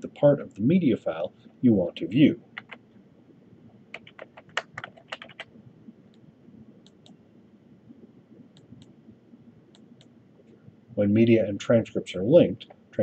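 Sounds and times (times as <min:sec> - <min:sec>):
keyboard typing: 0:02.6 - 0:02.8, 0:03.9 - 0:05.5.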